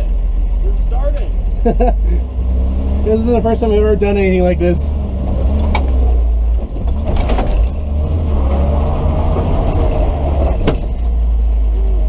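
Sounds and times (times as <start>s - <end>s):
truck engine pulling at low speed: 0.0s - 12.0s
truck body rattling: 5.3s - 11.3s.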